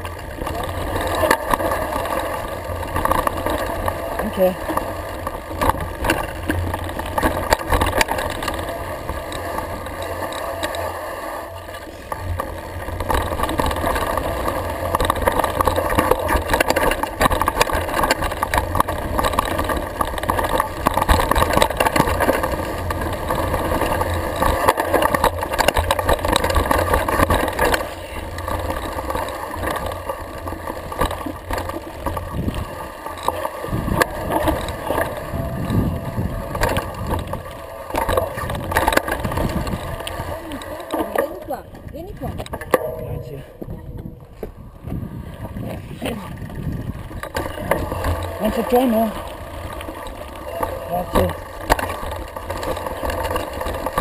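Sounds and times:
bike rattling on dirt trail: 0.0 - 54.0
wind rumble on microphone: 32.0 - 33.0, 33.6 - 40.8, 41.6 - 54.0.

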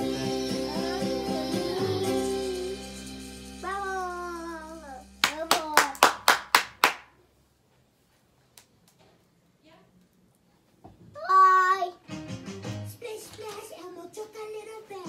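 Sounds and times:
person singing: 0.0 - 4.9, 12.9 - 15.0
music playing: 0.0 - 5.8, 12.0 - 13.1
hand claps: 5.2 - 7.1.

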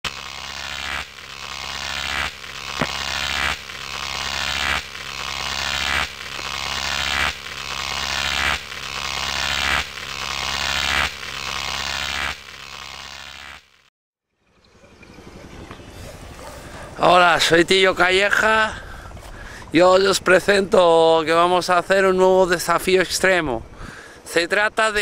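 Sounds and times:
low hum: 0.0 - 19.7.

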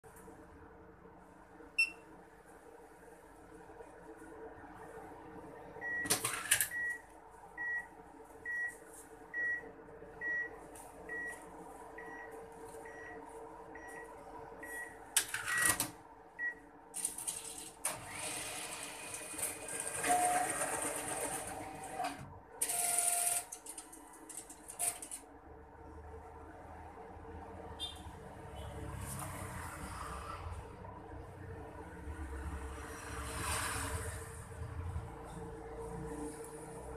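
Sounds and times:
cash slot mechanical clatter: 15.2 - 16.0, 17.0 - 25.2
note counting mechanism whirring: 17.0 - 23.6.

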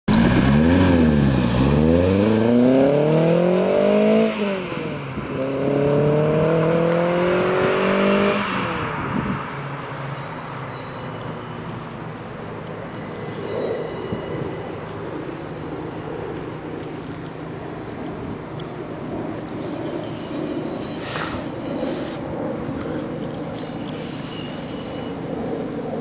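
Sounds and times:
car engine revving and accelerating: 0.1 - 9.5.

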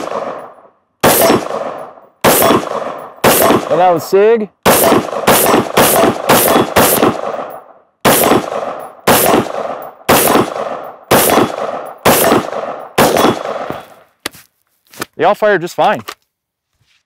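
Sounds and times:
pistol gunshots: 0.0 - 4.0, 4.6 - 14.0.

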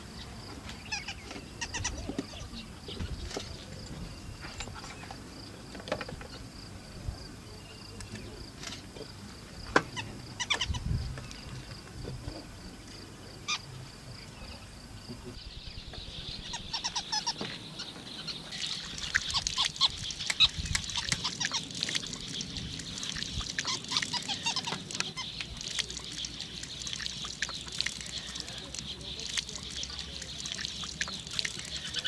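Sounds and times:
birds chattering: 0.0 - 32.0
water splashing from tap: 18.5 - 32.0.

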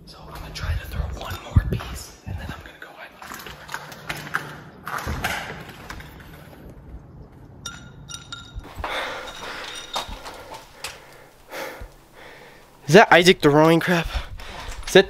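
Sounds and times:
footsteps and shuffling: 0.1 - 7.6, 8.6 - 12.8
debris clattering on floor: 7.7 - 11.1.

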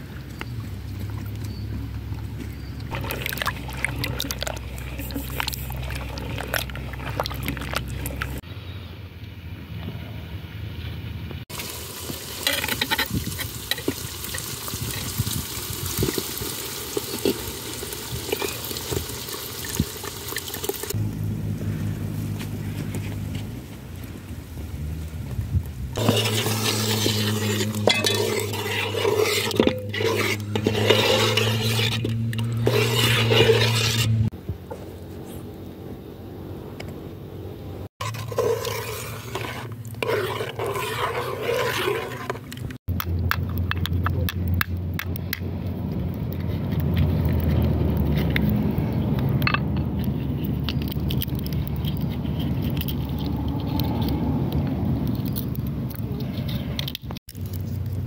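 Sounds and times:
metal spoon scraping pot: 2.9 - 8.4, 12.4 - 14.0, 26.0 - 34.3, 38.0 - 44.0
liquid pouring into pot: 3.0 - 8.4
low hum: 21.0 - 37.9.

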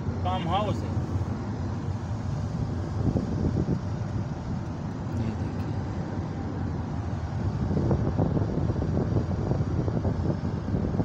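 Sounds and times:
car engine: 0.0 - 11.0
tyre and road noise: 0.0 - 11.0
wind noise: 2.0 - 4.7, 7.2 - 11.0.

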